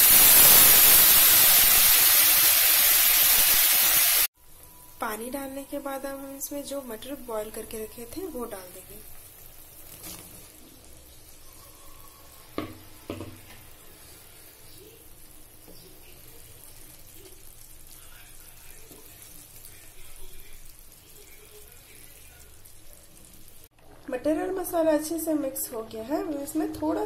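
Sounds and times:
gravy simmering with hiss: 0:00.0 - 0:27.0
stirring in a pan: 0:08.8 - 0:24.1.

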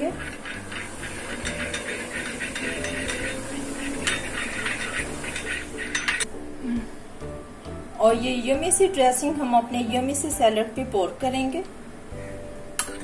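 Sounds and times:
spoon stirring in glass bowl: 0:00.0 - 0:06.3.

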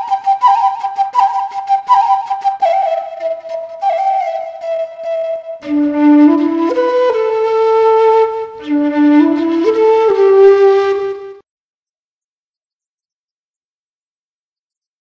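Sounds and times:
bamboo flute melody: 0:00.0 - 0:11.4.

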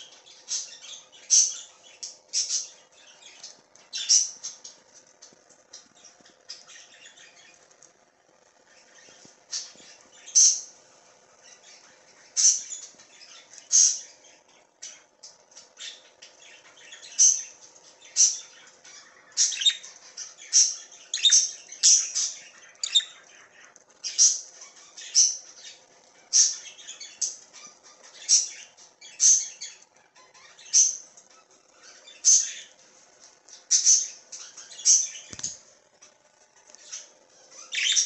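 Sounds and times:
budgerigar chirping: 0:12.4 - 0:14.1, 0:16.8 - 0:17.6, 0:18.2 - 0:31.1, 0:31.8 - 0:32.7, 0:36.8 - 0:38.0.

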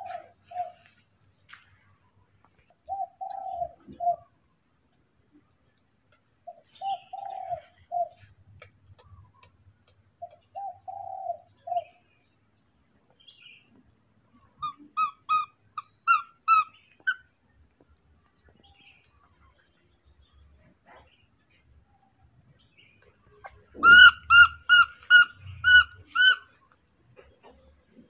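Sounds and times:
dove cooing: 0:00.0 - 0:00.9, 0:02.9 - 0:04.3, 0:06.5 - 0:08.3, 0:10.2 - 0:12.0, 0:23.4 - 0:26.5
sharp high chirping calls: 0:14.5 - 0:17.3, 0:23.4 - 0:26.6.

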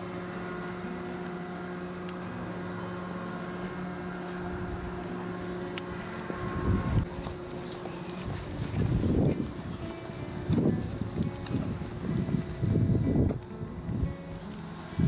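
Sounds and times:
steady mechanical hum: 0:00.0 - 0:15.0
low rumbling: 0:04.1 - 0:15.0.

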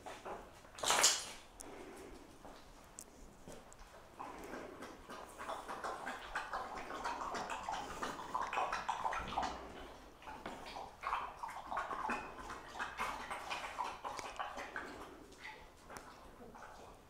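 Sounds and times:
dog claws clicking on concrete: 0:00.7 - 0:01.7
dog lapping water: 0:03.8 - 0:17.0.

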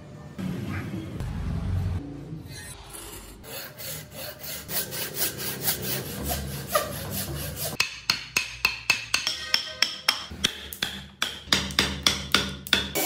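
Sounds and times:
hand saw cutting wood: 0:03.4 - 0:07.8.

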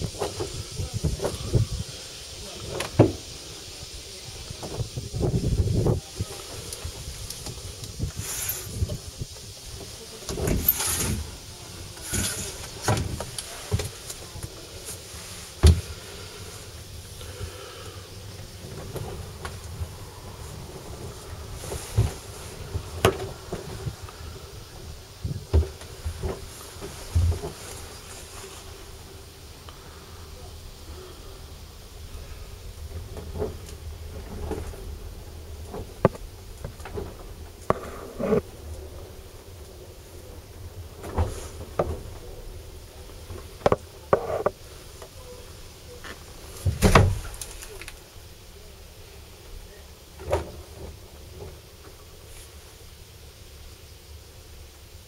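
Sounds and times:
low steady rumble: 0:00.0 - 0:55.0
loud thump: 0:15.6 - 0:15.9.

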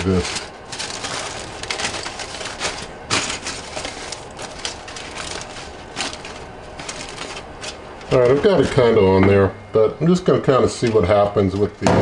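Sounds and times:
aluminium foil crinkling: 0:00.0 - 0:09.0.

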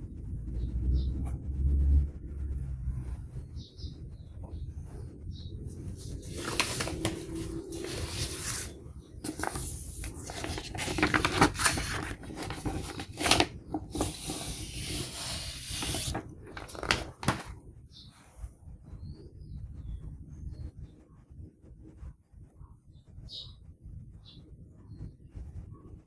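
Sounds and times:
paper sleeves rustling: 0:05.6 - 0:18.5.

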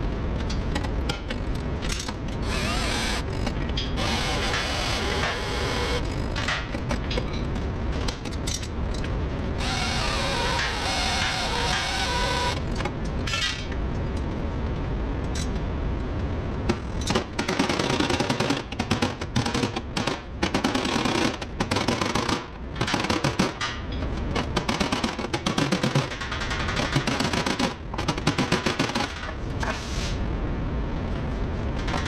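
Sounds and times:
power tool hammering: 0:04.0 - 0:06.0, 0:09.6 - 0:12.6.

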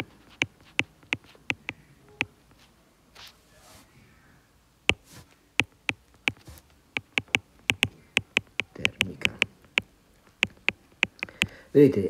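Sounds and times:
stylus clicking on tablet screen: 0:00.0 - 0:02.4, 0:04.9 - 0:11.6.

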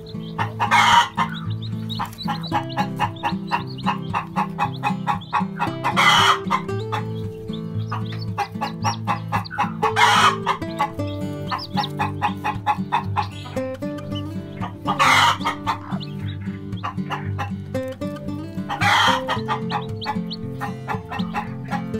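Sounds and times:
background music: 0:00.0 - 0:21.9
chicken squawks: 0:00.0 - 0:21.9
chickens clucking: 0:00.0 - 0:21.9.

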